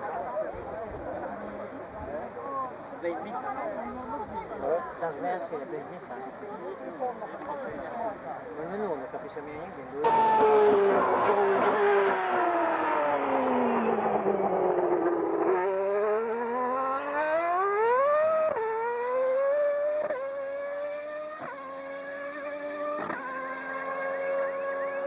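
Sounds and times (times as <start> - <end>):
racing car engine at high revs: 10.0 - 25.0.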